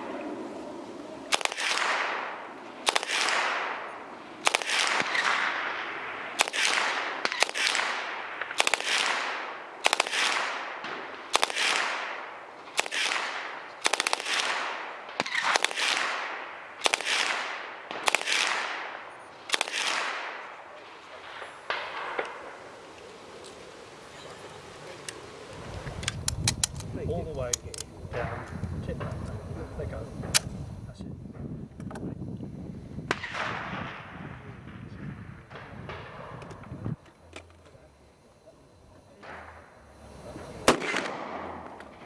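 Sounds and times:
submachine gun shots with echo: 1.3s - 22.7s, 33.1s - 34.9s, 40.6s - 42.0s.

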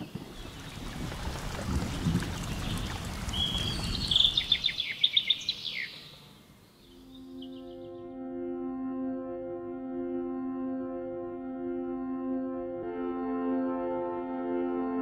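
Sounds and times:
steady rushing outdoor noise: 0.0s - 5.5s
songbird calling: 0.0s - 8.1s
soft ambient music: 6.9s - 15.0s.

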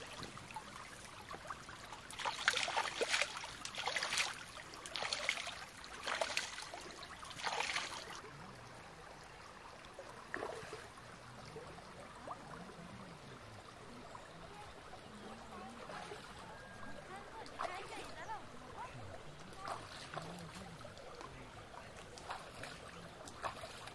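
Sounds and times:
hands splashing in stream: 0.0s - 8.3s, 10.3s - 11.0s, 19.3s - 23.9s
faint outdoor background: 0.0s - 23.9s.

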